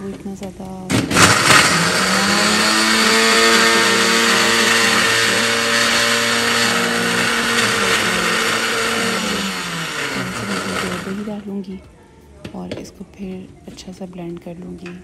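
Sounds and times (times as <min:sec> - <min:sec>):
blender knob switching off: 0:00.9 - 0:11.2
blender running: 0:00.9 - 0:11.5.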